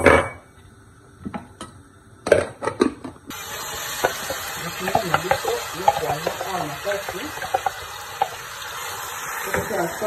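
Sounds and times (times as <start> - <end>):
vegetables sizzling in oil: 3.3 - 10.0.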